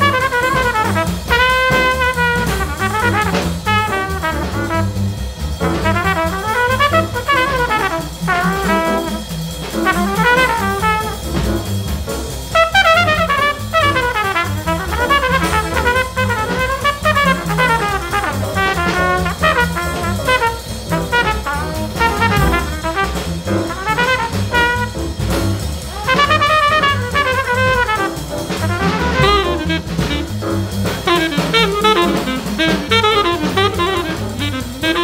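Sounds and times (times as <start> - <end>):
instrumental music with beat: 0.0 - 35.0.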